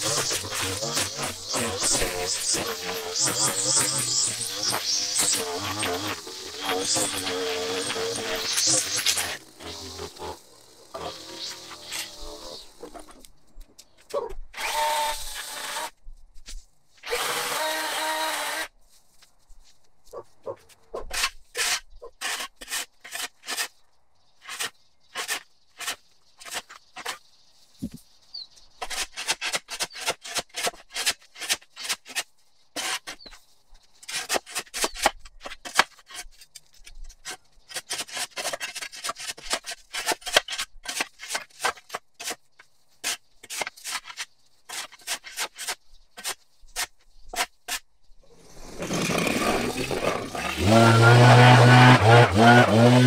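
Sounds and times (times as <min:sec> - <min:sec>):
shovel scraping concrete: 0:21.0 - 0:23.8, 0:24.4 - 0:27.2, 0:37.2 - 0:42.4, 0:43.0 - 0:47.8, 0:48.4 - 0:53.0.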